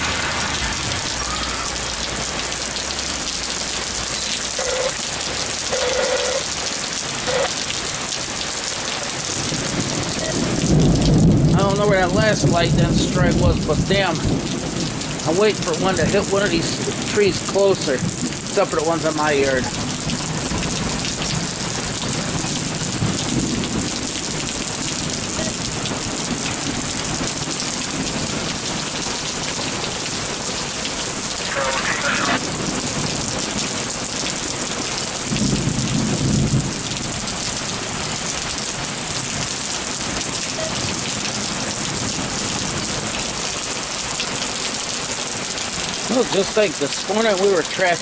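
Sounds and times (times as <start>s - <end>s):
heavy rain pouring: 0.0s - 48.0s
low rumble of thunder: 9.2s - 16.2s, 19.7s - 29.9s, 32.4s - 43.2s.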